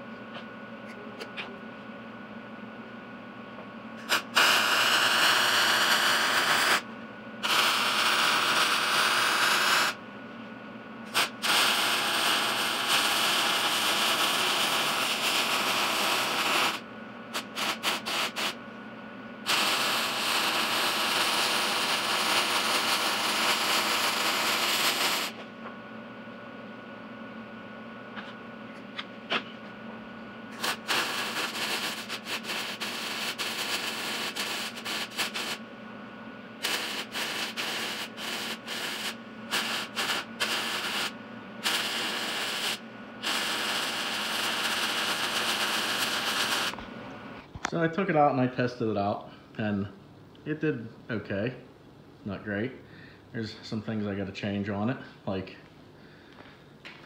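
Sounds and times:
welder arc crackling and hissing: 4.0 - 10.0, 11.1 - 18.6, 19.4 - 25.5, 30.5 - 35.7, 36.6 - 47.8.

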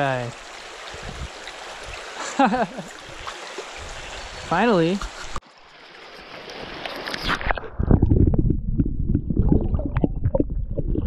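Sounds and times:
creek water rushing: 0.0 - 7.4
underwater clicks and pops: 7.0 - 11.0
muffled underwater rumble: 7.4 - 11.0.

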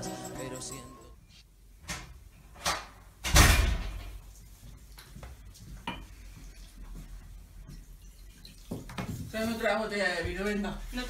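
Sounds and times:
door slamming shut: 2.6 - 4.2.

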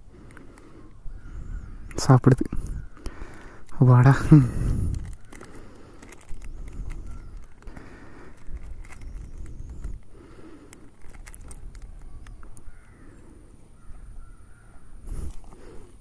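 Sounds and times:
wind rumble on microphone: 0.9 - 3.0, 4.0 - 5.4, 6.2 - 7.6, 8.4 - 10.2, 11.0 - 13.0
dog crunching biscuit: 4.5 - 12.7.

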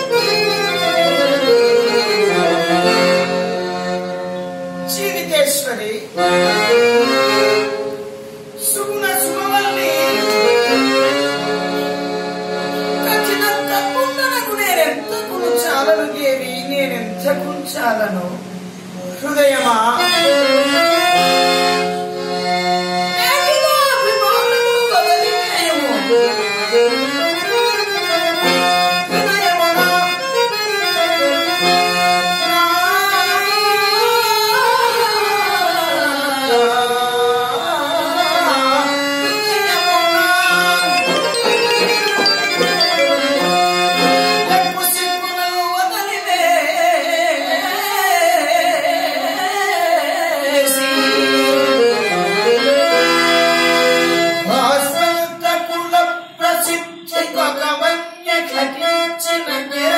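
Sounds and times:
harmonium playing: 0.0 - 59.9
man singing: 32.4 - 51.4, 54.4 - 59.9.

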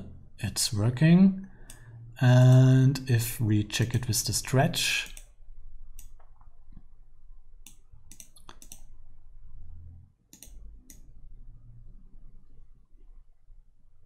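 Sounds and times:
faint low hum: 0.0 - 14.0
computer mouse clicking: 5.0 - 5.3, 6.0 - 6.6, 7.6 - 9.0, 10.3 - 11.2.

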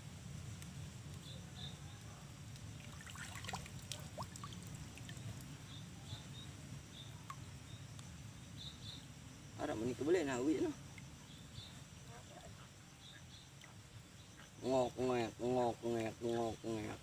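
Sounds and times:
faint high chirps: 1.1 - 15.3
small splashes and clicks: 2.5 - 5.6, 13.1 - 13.8
water sloshing around wading legs: 2.7 - 5.6.

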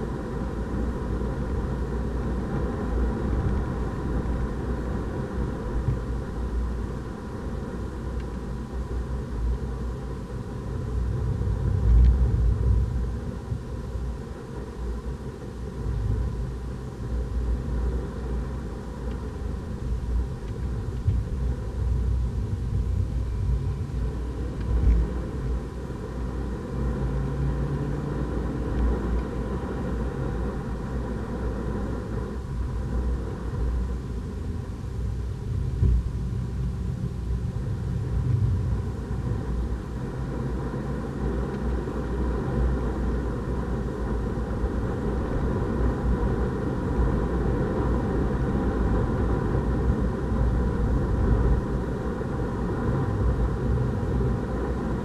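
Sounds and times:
car engine from inside cabin: 0.0 - 55.0
road and tyre noise rumble: 0.0 - 55.0.

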